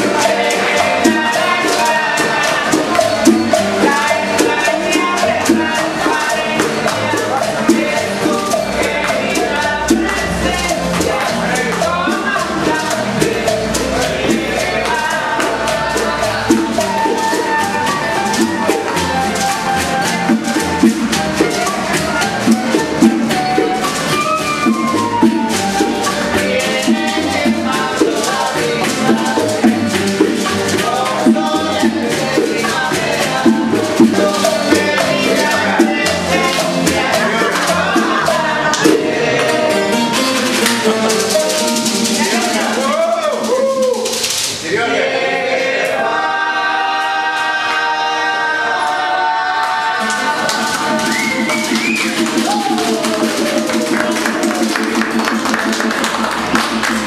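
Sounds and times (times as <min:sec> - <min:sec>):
upright bass: 0:00.0 - 0:44.8
men singing: 0:00.0 - 0:56.2
acoustic guitars: 0:00.0 - 0:57.0
maracas shaker rhythm: 0:00.0 - 0:57.0
flute: 0:16.3 - 0:27.2, 0:39.5 - 0:44.2, 0:50.0 - 0:54.6.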